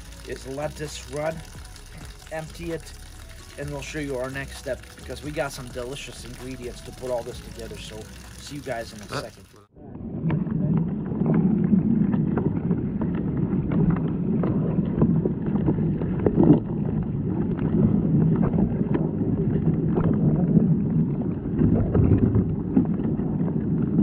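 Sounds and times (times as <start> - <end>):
muffled water rumble: 0.0 - 24.0.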